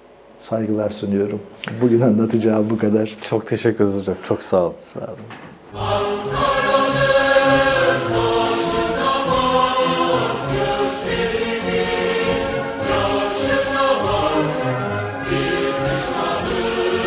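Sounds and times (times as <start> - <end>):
choir singing long held notes: 5.7 - 17.0.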